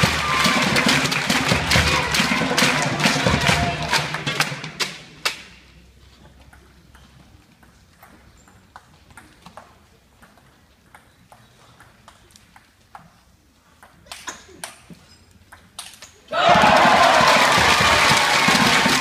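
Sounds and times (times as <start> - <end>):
crowd noise: 0.0 - 6.1, 16.3 - 19.0.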